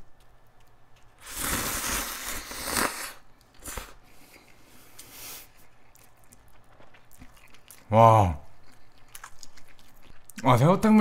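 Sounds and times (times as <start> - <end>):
slurping noodles: 1.2 - 5.6.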